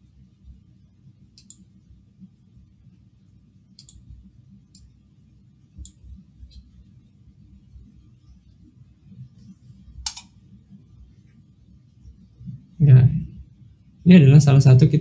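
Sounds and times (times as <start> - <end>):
computer mouse clicks: 1.4 - 1.7, 3.8 - 4.1, 4.7 - 4.9, 5.8 - 6.7, 10.0 - 10.4.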